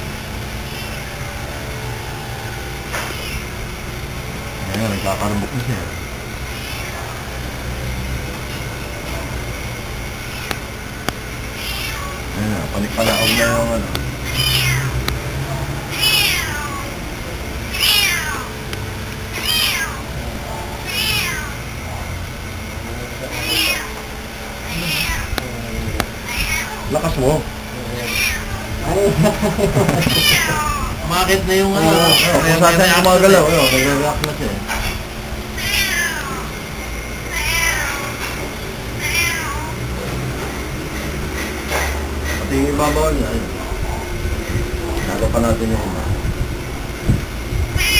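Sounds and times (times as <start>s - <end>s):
cat meowing: 0.6s - 1.2s, 3.1s - 3.5s, 6.5s - 7.2s, 10.2s - 10.6s, 11.5s - 15.1s, 15.8s - 18.6s, 19.3s - 20.2s, 20.8s - 21.8s, 23.2s - 25.4s, 26.2s - 27.1s, 27.8s - 28.9s, 30.0s - 35.0s, 35.6s - 36.6s, 37.2s - 40.0s, 47.7s - 47.9s.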